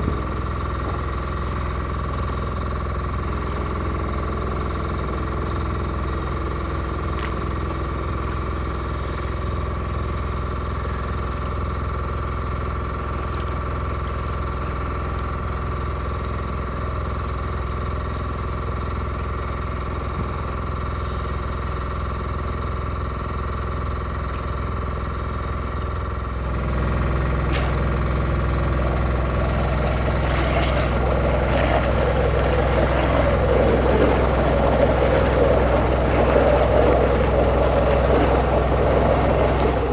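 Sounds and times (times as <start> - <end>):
motor humming: 26.4 - 39.9
water churning and splashing: 27.5 - 39.9.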